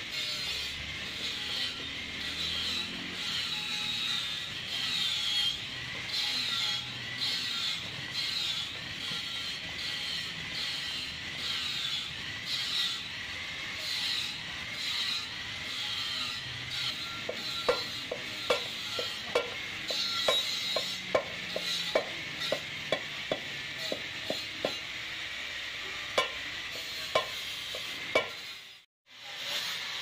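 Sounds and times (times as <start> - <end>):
hammer ringing on metal rim: 17.2 - 24.8, 26.2 - 26.4, 27.0 - 28.4.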